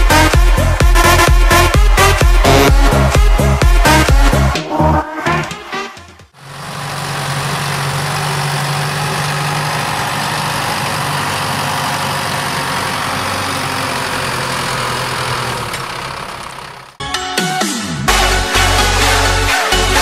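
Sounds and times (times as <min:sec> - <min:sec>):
tractor diesel engine running: 0:00.0 - 0:04.6, 0:06.3 - 0:17.0.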